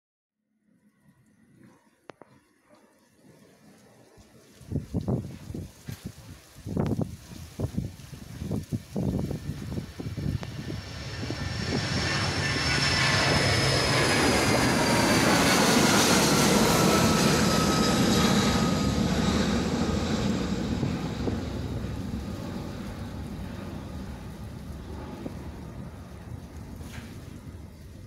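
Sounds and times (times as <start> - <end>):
jet airliner taking off: 8.5 - 28.0.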